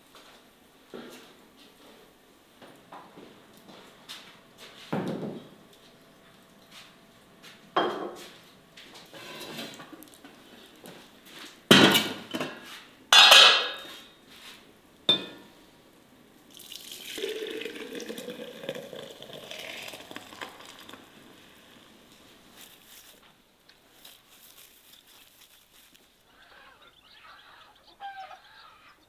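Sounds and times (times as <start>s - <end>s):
crockery knocks and clinks: 13.2s - 13.9s
milk pouring into a jug: 16.5s - 22.1s.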